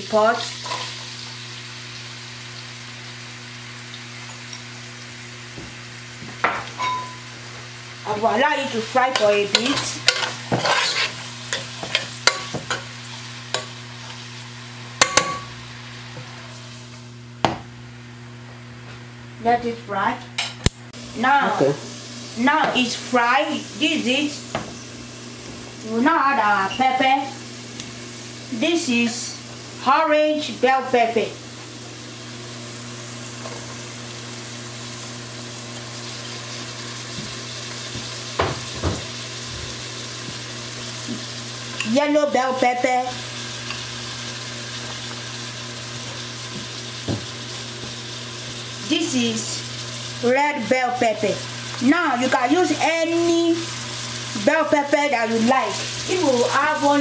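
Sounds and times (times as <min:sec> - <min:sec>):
onions sizzling in a pot: 0:00.0 - 0:19.1, 0:20.4 - 0:57.0
metal spoon scraping pot: 0:09.5 - 0:12.8
spoon knocking on pot: 0:15.0 - 0:15.5.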